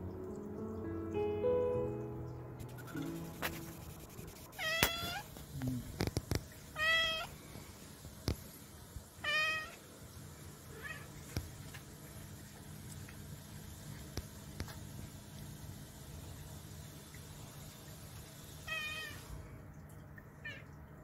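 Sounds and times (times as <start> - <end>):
cat mewing: 4.6 - 5.3, 6.8 - 7.3, 9.2 - 9.8, 10.7 - 11.1, 18.7 - 19.2.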